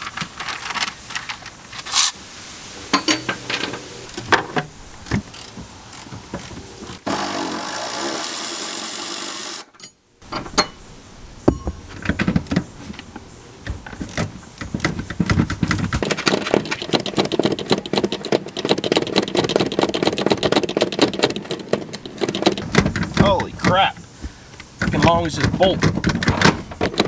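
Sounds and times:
loosened parts clattering: 0.0s - 2.2s, 2.9s - 7.1s, 9.7s - 27.0s
cordless power tool running: 7.0s - 9.7s
rapid clicking rattle: 14.1s - 23.8s.

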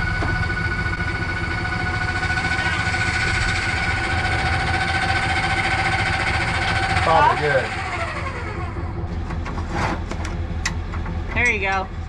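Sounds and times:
electric jack motor whining: 0.0s - 10.8s
low rumble: 0.0s - 12.0s.

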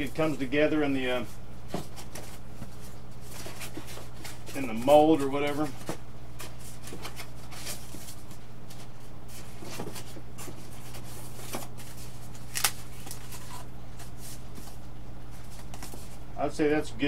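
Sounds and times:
low electrical hum: 0.0s - 17.0s
foam parts rustling and handling: 1.1s - 16.2s.

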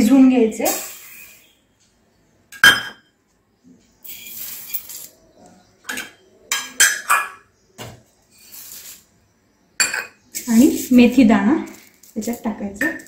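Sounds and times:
metal bowls clinking: 2.6s - 3.1s, 4.0s - 7.6s, 9.8s - 13.0s.

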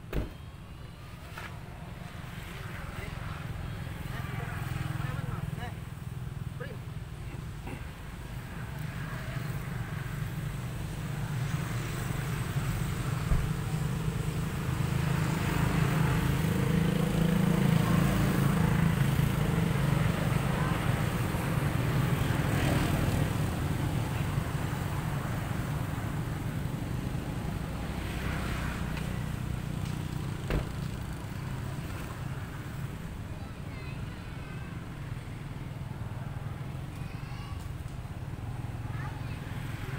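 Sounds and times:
vehicle engine rumble: 23.0s - 39.5s.

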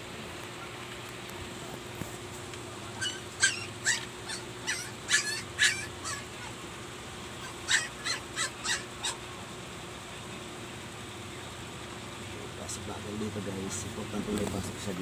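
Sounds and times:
animal short sharp high calls: 3.0s - 6.6s, 7.4s - 9.2s.

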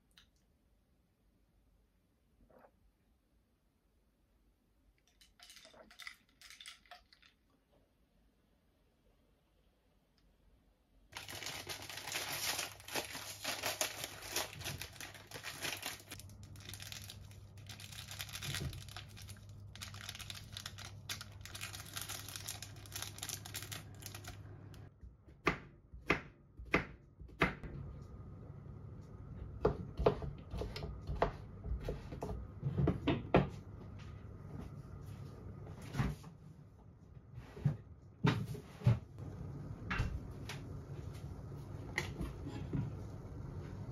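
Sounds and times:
plastic packets crinkling and tearing: 11.1s - 24.4s
low hum: 27.6s - 32.7s.

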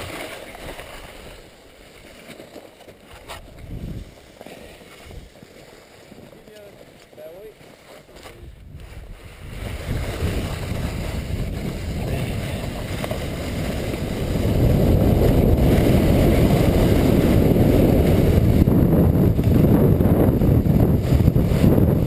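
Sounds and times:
sled runners scraping snow: 0.0s - 22.0s
wind on microphone: 3.3s - 4.2s, 5.0s - 5.4s, 8.1s - 22.0s.

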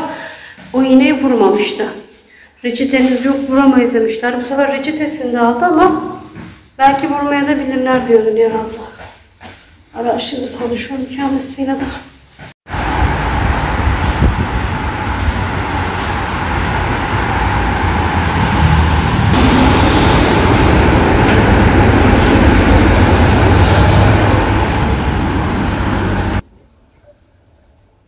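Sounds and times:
car engine and road noise: 12.7s - 26.4s.

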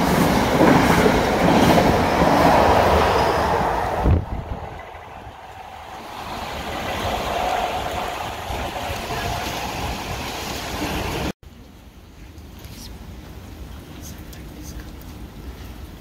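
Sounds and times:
electric train approaching: 0.0s - 11.3s.

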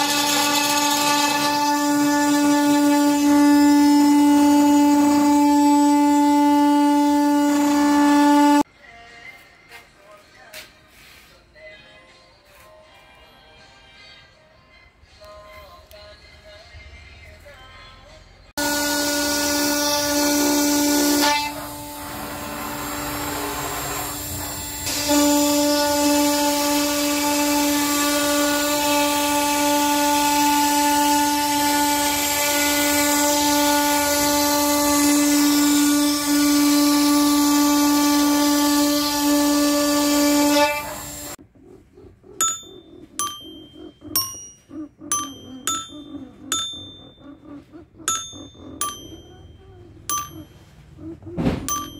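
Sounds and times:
router spindle cutting wood: 0.0s - 8.6s, 18.6s - 41.4s
toy xylophone notes ringing: 42.4s - 47.2s, 48.1s - 50.7s, 51.7s - 51.9s.

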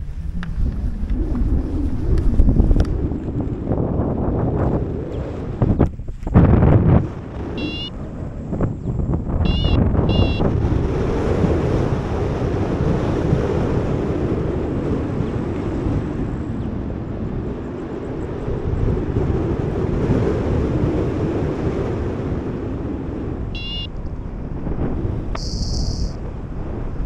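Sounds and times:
wind noise on microphone: 0.0s - 27.0s
short high electronic beep: 7.6s - 7.9s, 9.5s - 10.5s, 23.6s - 23.9s, 25.4s - 26.2s.

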